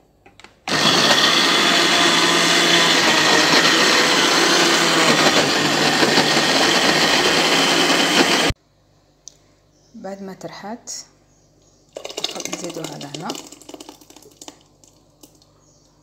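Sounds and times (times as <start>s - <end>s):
blender running: 0.7s - 8.6s.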